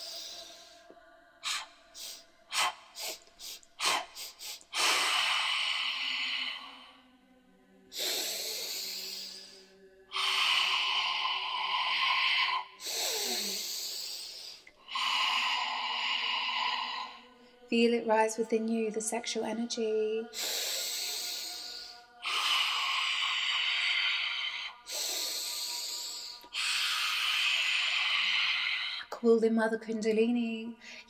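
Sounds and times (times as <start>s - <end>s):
woman forceful open-mouthed breaths: 0.0s - 7.0s, 7.9s - 17.6s, 20.3s - 29.1s
woman breathing sharply: 30.8s - 31.0s.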